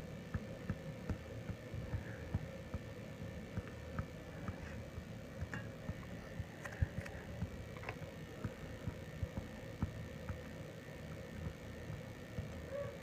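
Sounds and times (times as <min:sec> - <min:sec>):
faint high whine: 0:00.0 - 0:13.0
low steady hum: 0:00.0 - 0:13.0
small irregular clicks: 0:03.5 - 0:12.8.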